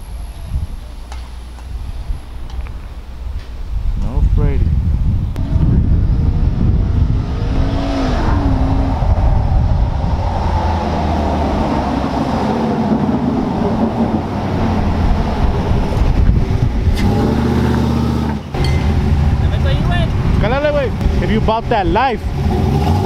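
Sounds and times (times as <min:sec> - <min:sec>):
pickup truck engine driving: 0:04.7 - 0:23.0.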